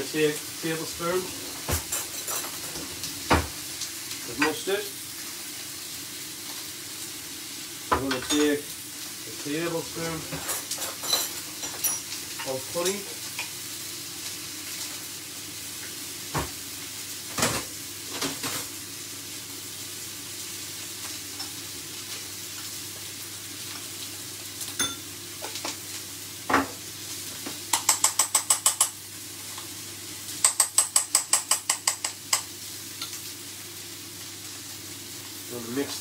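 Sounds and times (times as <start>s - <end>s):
steak sizzling in a frying pan: 0.0s - 36.0s
spoon clinking in ceramic bowl: 24.8s - 25.1s.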